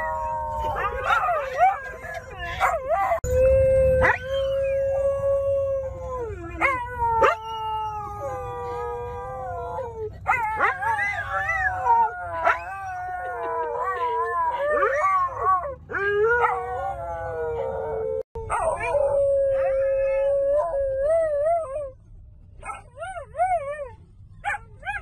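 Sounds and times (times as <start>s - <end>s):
dog howling: 0.0s - 21.9s
car rumble: 0.0s - 25.0s.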